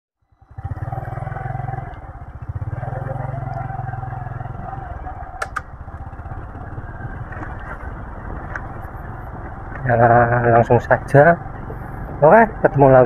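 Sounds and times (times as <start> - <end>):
motorcycle engine running: 0.2 - 13.0
sharp clicks: 5.4 - 5.7.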